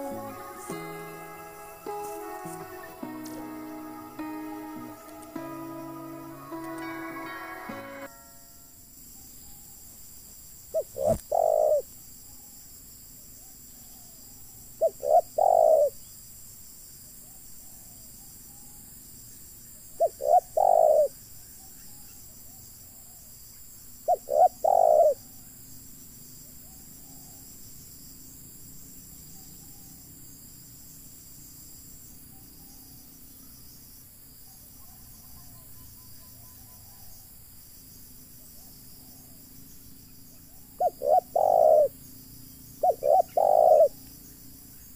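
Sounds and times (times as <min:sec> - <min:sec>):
dove cooing: 0:00.0 - 0:00.9, 0:10.8 - 0:11.8, 0:14.8 - 0:16.0, 0:20.0 - 0:21.1, 0:24.1 - 0:25.2, 0:40.5 - 0:41.9, 0:42.8 - 0:44.0.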